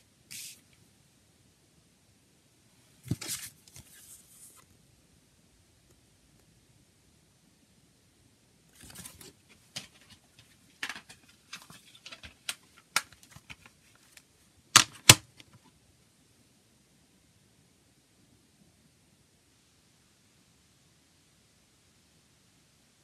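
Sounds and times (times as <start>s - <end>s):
paper booklet rustling: 3.0s - 4.6s, 8.8s - 14.2s
plastic case clacking shut: 14.8s - 15.4s.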